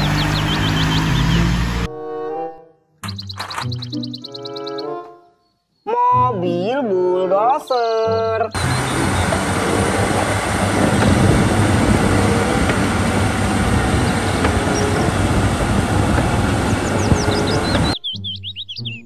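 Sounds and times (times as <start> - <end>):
bulldozer diesel engine under load: 0.0 - 1.9, 8.6 - 18.0.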